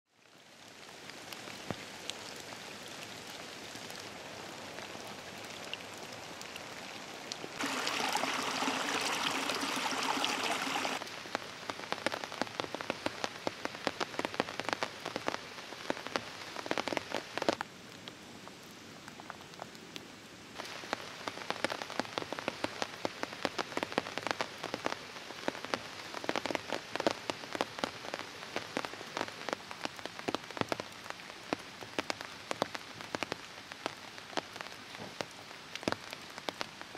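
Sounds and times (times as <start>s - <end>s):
rain on forest floor: 0.1s - 36.9s
raindrops ticking: 3.0s - 17.6s.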